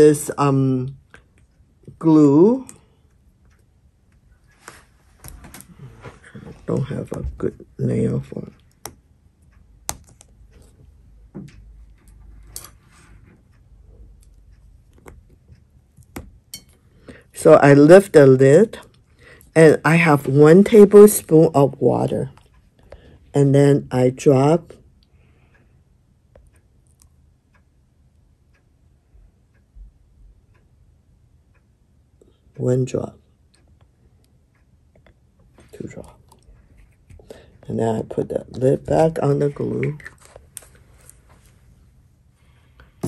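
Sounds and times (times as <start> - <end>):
faint clicks and scrapes: 3.4 - 7.2, 9.5 - 17.0, 34.5 - 37.7, 39.4 - 43.0.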